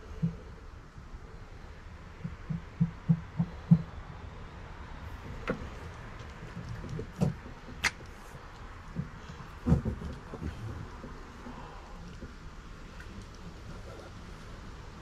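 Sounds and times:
soft low thumps: 0:02.2 - 0:04.2.

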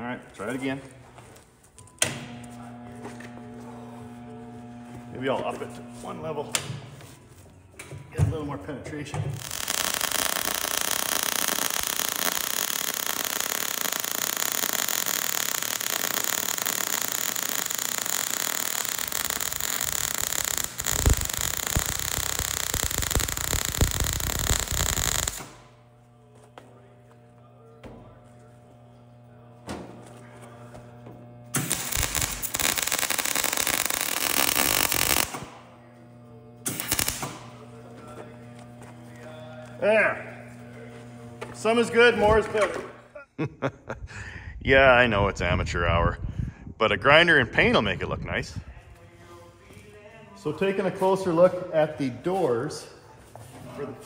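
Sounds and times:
welding arc frying and crackling: 0:09.3 - 0:26.0, 0:31.2 - 0:42.9.

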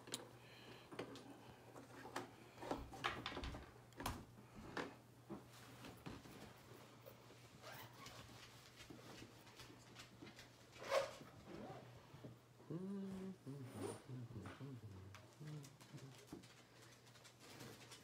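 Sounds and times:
steady low hum: 0:11.5 - 0:17.5.

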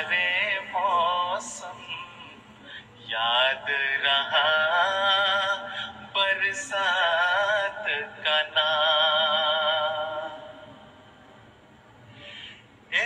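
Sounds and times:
person singing devotional song: 0:00.0 - 0:10.9.

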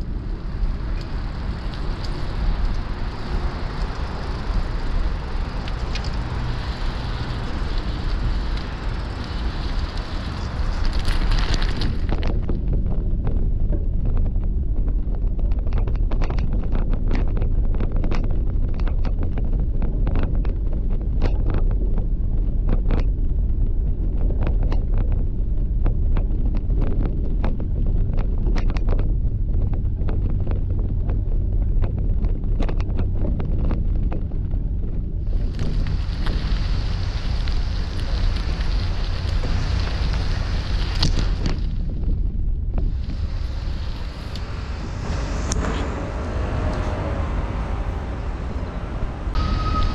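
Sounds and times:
gravel crunching: 0:00.0 - 0:49.9
wind rumbling on microphone: 0:00.0 - 0:49.9
steady loud hiss: 0:42.9 - 0:46.6.

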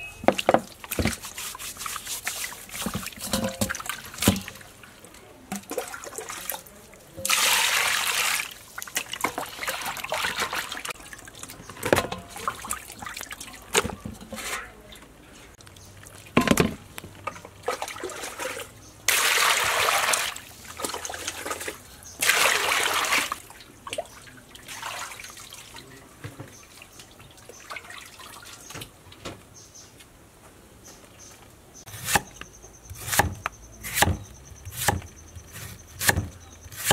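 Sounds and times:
water splashing: 0:00.0 - 0:14.6, 0:17.5 - 0:28.8
water sloshing and trickling: 0:00.0 - 0:29.5.

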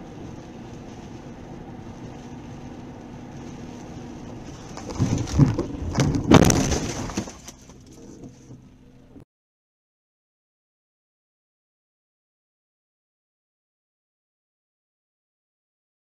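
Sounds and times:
road noise inside a car: 0:00.0 - 0:09.2
car collision crashing: 0:04.5 - 0:08.7.

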